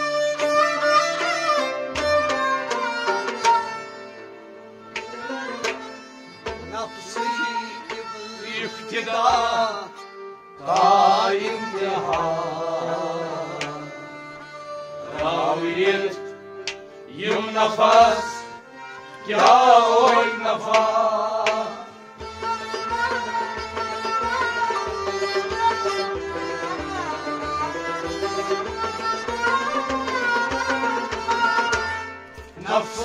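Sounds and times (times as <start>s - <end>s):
tabla drumming: 0.0s - 8.1s, 10.7s - 12.7s, 15.1s - 16.0s, 16.6s - 18.3s, 19.3s - 33.0s
wavering vocal melody: 7.0s - 10.0s, 10.6s - 14.4s, 15.1s - 16.3s, 17.1s - 18.6s, 19.2s - 21.9s.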